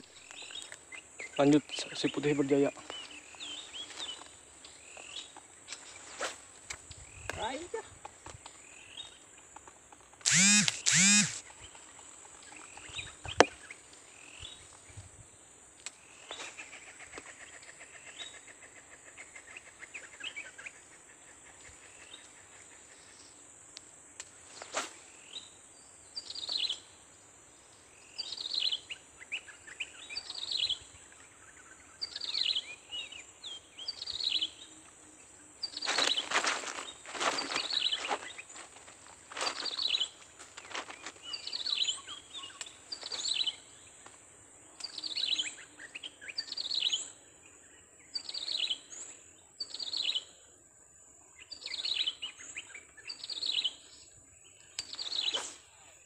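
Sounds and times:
sharp clicks: 0:10.2 - 0:11.4
loud bird calls: 0:10.2 - 0:11.8, 0:35.6 - 0:44.0
buzzy bird trill: 0:10.3 - 0:11.4
short falling chirps: 0:10.3 - 0:11.4.

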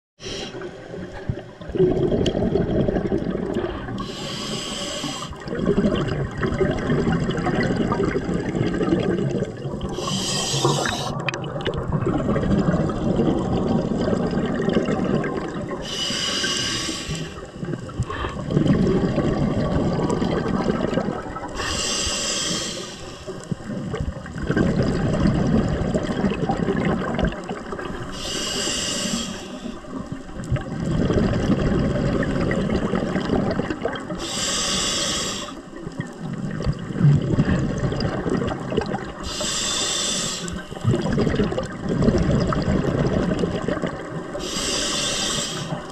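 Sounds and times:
regulator hissing inhale: 0:00.2 - 0:00.8, 0:04.0 - 0:05.4, 0:09.9 - 0:11.2, 0:15.8 - 0:18.4, 0:21.5 - 0:23.6, 0:28.1 - 0:30.0, 0:34.2 - 0:35.7, 0:39.2 - 0:40.8, 0:44.3 - 0:45.9
bubbling exhaled air: 0:00.2 - 0:45.9.

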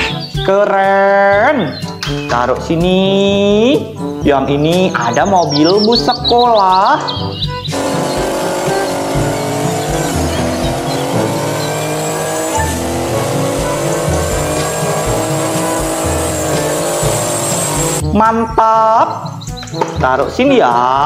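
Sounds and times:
tyres squealing: 0:05.4 - 0:18.0
diesel engine revving high: 0:07.7 - 0:18.0.

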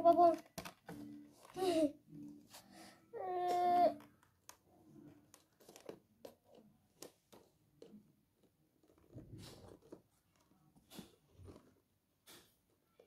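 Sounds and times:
box rustling: 0:05.2 - 0:07.4.

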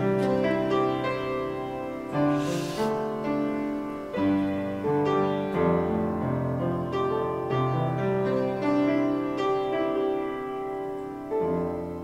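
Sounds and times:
slow piano chords: 0:00.0 - 0:12.0
brief hiss: 0:02.1 - 0:05.0.

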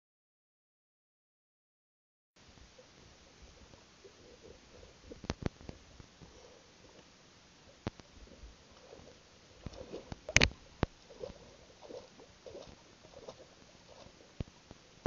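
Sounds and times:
water lapping against inner tube: 0:02.7 - 0:15.0
clicks and knocks near microphone: 0:05.1 - 0:06.1, 0:09.6 - 0:11.4.

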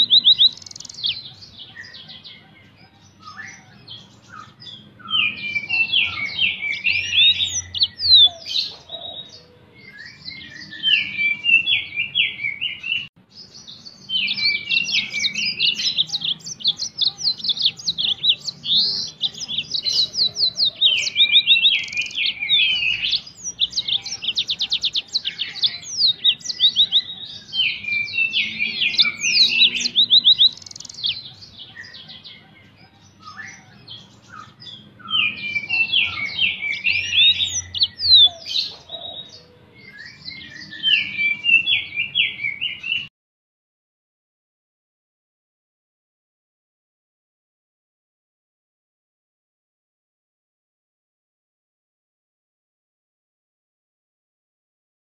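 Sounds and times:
canary singing: 0:00.0 - 0:43.1.

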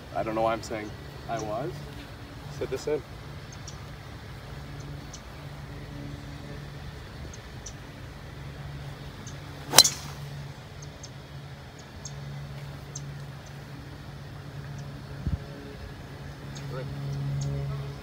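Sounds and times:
golf club striking ball: 0:09.6 - 0:10.4.

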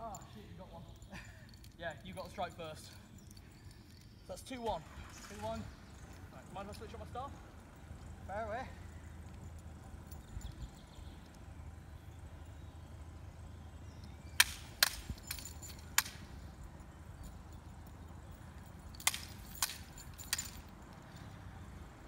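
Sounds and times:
practice blades clacking: 0:14.3 - 0:16.4, 0:19.0 - 0:20.7.

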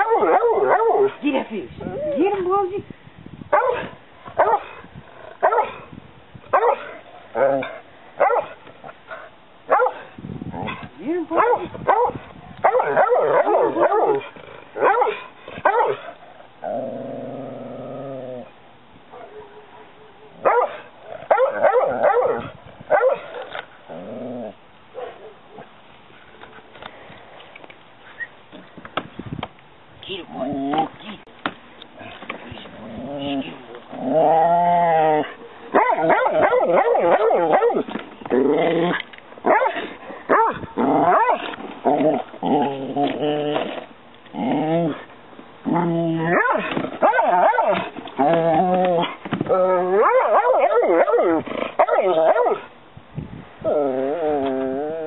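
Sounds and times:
dog barking and yipping: 0:00.0 - 0:01.2, 0:03.5 - 0:04.7, 0:05.4 - 0:05.8, 0:06.5 - 0:08.6, 0:09.7 - 0:10.0, 0:11.3 - 0:14.2, 0:14.8 - 0:16.0, 0:19.1 - 0:23.5, 0:35.7 - 0:37.9, 0:39.4 - 0:41.5, 0:46.3 - 0:47.9, 0:49.9 - 0:52.7
dog growling low: 0:16.6 - 0:18.6, 0:23.9 - 0:24.6, 0:32.0 - 0:35.4, 0:38.3 - 0:39.1, 0:40.7 - 0:50.1, 0:53.6 - 0:55.0
dog whining and yelping: 0:45.8 - 0:52.6.

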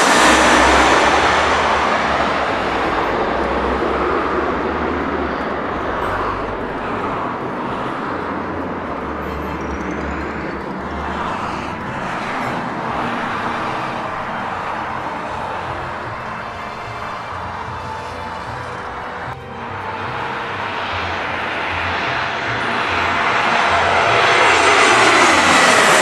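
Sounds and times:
jet airliner passing: 0:00.0 - 0:26.0.

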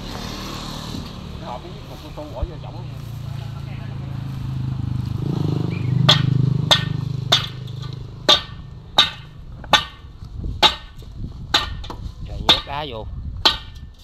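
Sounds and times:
engine hum: 0:00.0 - 0:11.5
ringing metallic knocks: 0:05.7 - 0:12.8, 0:13.4 - 0:14.0.

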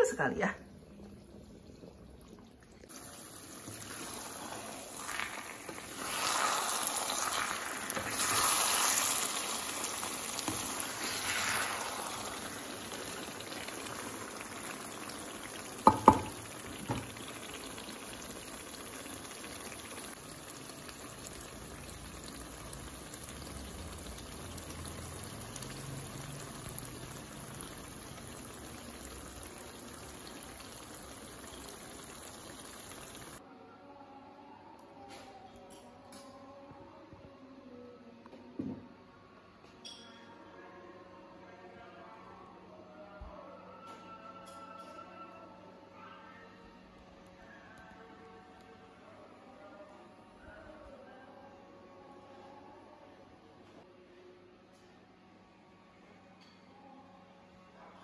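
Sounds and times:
stew bubbling and sizzling: 0:00.0 - 0:33.4.

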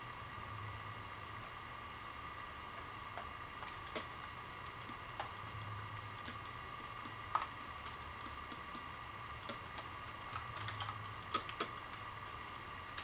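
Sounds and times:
faint hum and high whine: 0:00.0 - 0:13.0
faint clicks and taps: 0:02.0 - 0:05.4, 0:06.2 - 0:13.0.

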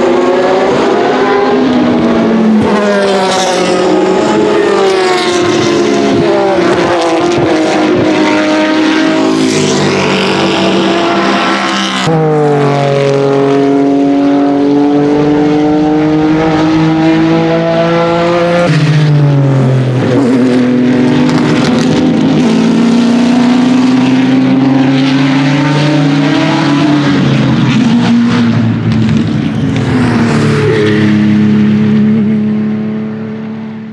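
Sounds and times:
racing car engines at high revs: 0:00.0 - 0:33.9.

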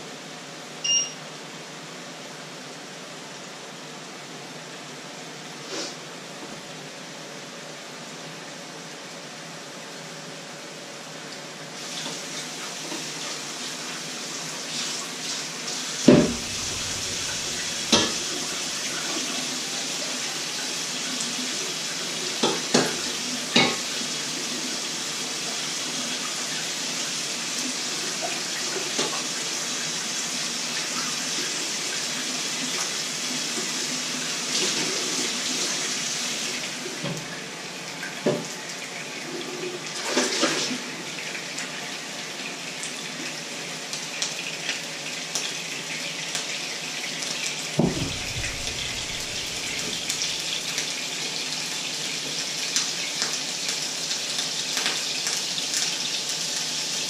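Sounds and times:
tap running into sink: 0:16.0 - 0:18.9, 0:22.4 - 0:23.8, 0:47.8 - 0:50.6
dishes knocking together: 0:16.1 - 0:18.4, 0:47.8 - 0:49.9.

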